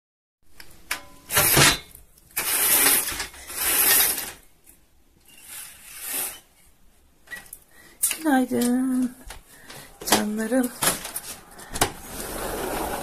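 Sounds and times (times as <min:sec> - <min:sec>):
roller blind mechanism rattling: 0:02.4 - 0:04.4, 0:12.0 - 0:13.0.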